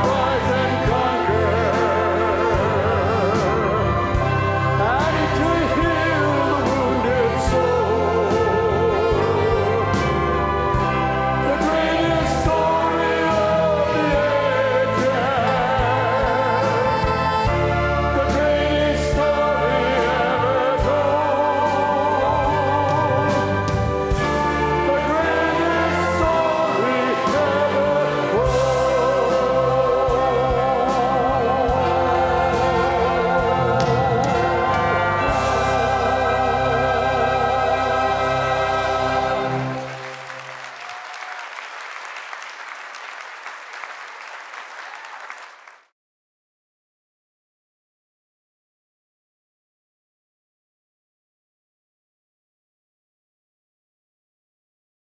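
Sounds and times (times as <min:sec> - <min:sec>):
mixed choir singing: 0:00.0 - 0:40.5
instrumental accompaniment: 0:00.0 - 0:40.8
audience applause: 0:39.4 - 0:45.9.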